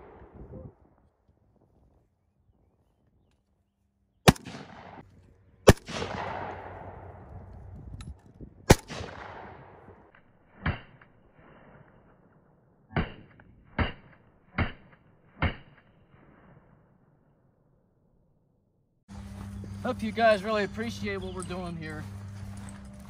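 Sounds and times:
duller rifle shots: 0:04.3 - 0:05.0, 0:05.6 - 0:07.2, 0:08.7 - 0:10.0
rifle shots with echo: 0:04.3 - 0:05.0, 0:05.6 - 0:07.3, 0:08.7 - 0:10.9.

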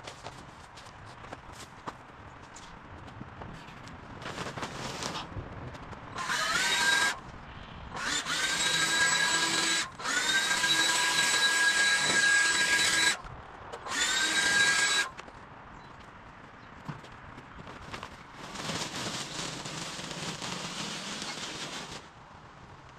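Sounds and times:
leaf blower whining: 0:06.2 - 0:07.2, 0:08.0 - 0:13.2, 0:18.4 - 0:22.1.

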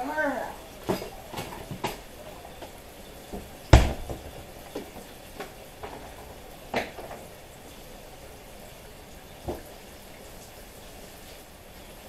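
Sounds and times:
dishes knocking: 0:00.8 - 0:02.1, 0:03.3 - 0:07.3
heavy thump: 0:03.4 - 0:04.4.

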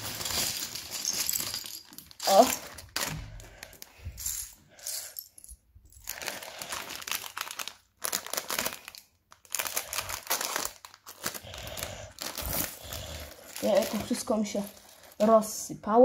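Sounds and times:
plastic bricks clattering: 0:00.0 - 0:04.5
plastic bag crinkling: 0:00.0 - 0:05.0, 0:05.9 - 0:15.6.

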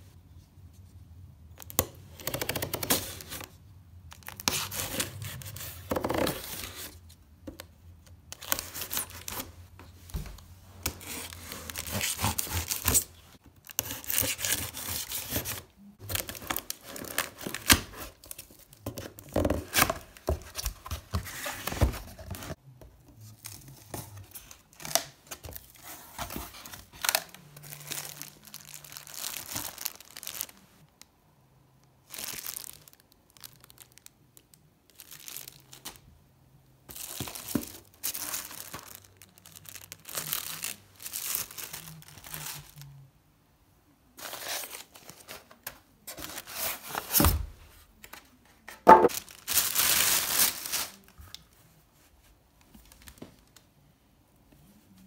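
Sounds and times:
packaging tearing and crinkling: 0:11.0 - 0:18.6, 0:26.2 - 0:30.6, 0:36.9 - 0:42.8, 0:49.0 - 0:51.1.

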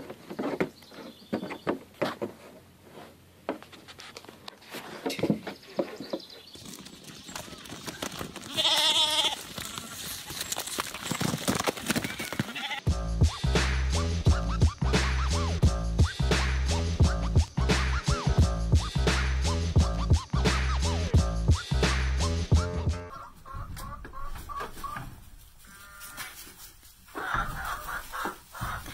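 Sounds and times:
goat bleating: 0:08.4 - 0:10.3, 0:12.0 - 0:12.9.

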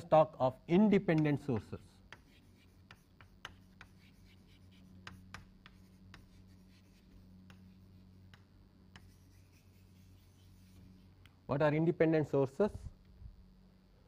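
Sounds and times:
steady low hum: 0:00.0 - 0:14.0
chalk tapping and scratching: 0:00.9 - 0:11.1.

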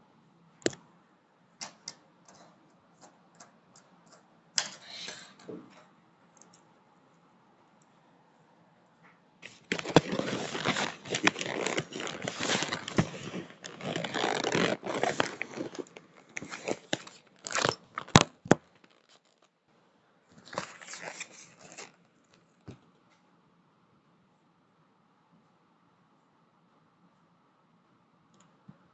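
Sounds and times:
paper crumpling and crinkling: 0:09.4 - 0:19.5, 0:20.4 - 0:22.0.

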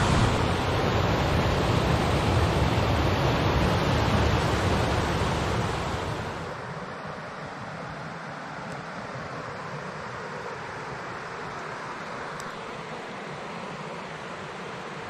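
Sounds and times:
water rushing over rocks: 0:00.0 - 0:06.6.

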